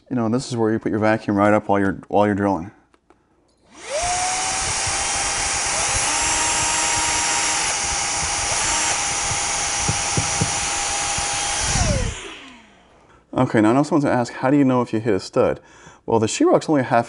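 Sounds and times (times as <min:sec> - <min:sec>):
cordless drill boring drywall: 0:03.7 - 0:13.0
stick vacuum whining: 0:03.7 - 0:13.1.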